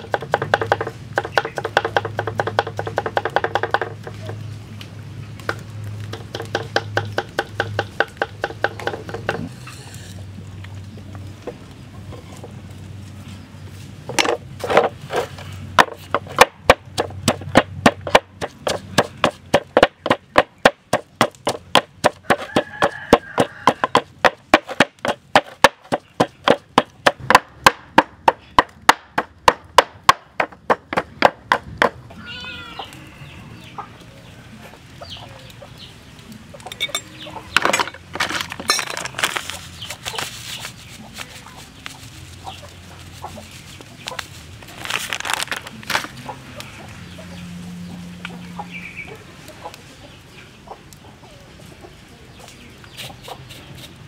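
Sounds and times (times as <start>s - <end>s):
wooden pestle pounding in mortar: 0.0s - 4.2s, 5.5s - 9.5s, 15.8s - 32.0s
chickens clucking: 6.2s - 27.4s, 30.5s - 44.8s, 45.6s - 54.0s.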